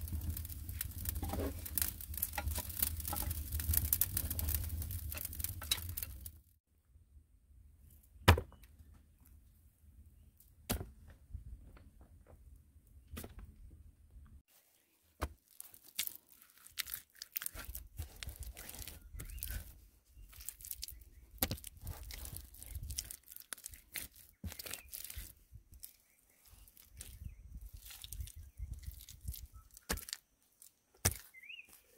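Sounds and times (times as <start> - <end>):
wet mud slapping and smearing: 20.4 - 26.0.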